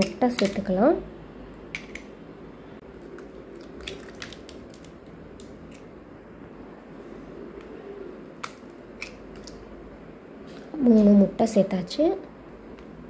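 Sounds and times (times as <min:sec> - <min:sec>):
wet squishes: 0:02.9 - 0:06.0, 0:08.4 - 0:09.7
eggshells cracking: 0:03.0 - 0:05.9.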